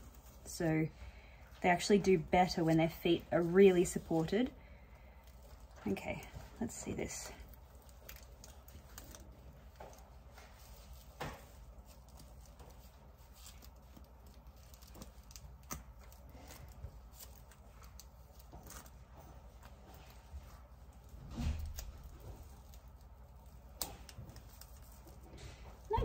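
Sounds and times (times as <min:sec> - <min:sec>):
tape peeling off feathers: 0:07.4 - 0:19.0.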